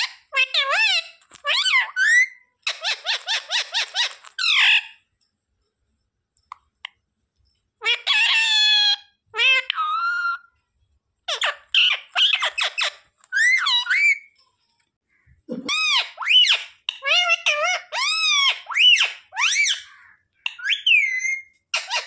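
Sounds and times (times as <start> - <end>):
parakeet shrill calls: 0.0 - 5.0, 7.8 - 10.5, 11.3 - 14.4, 15.7 - 22.0.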